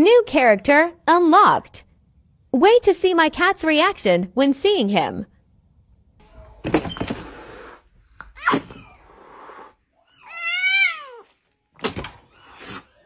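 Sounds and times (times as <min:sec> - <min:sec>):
cat hissing and spitting: 0:07.2 - 0:09.8, 0:12.3 - 0:13.0
cat yowling: 0:08.3 - 0:11.3.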